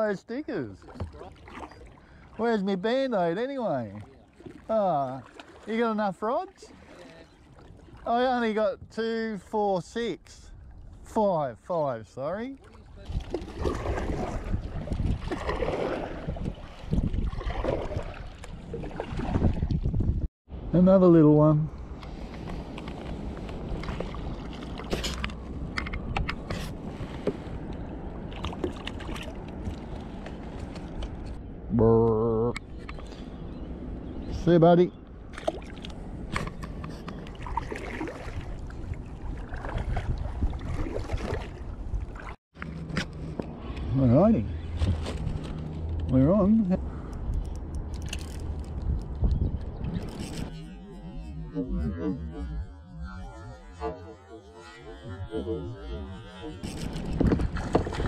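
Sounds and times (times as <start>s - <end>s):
water lapping around kayak: 0.5s - 9.5s, 10.5s - 11.3s, 12.2s - 20.2s, 21.8s - 31.4s, 35.0s - 58.0s
paddle splashing and dripping: 0.8s - 2.7s, 3.8s - 5.9s, 6.6s - 8.1s, 12.6s - 19.9s, 27.2s - 31.1s, 35.3s - 42.4s, 56.3s - 58.0s
wind rumble on microphone: 12.7s - 20.8s, 32.4s - 53.8s, 54.6s - 58.0s.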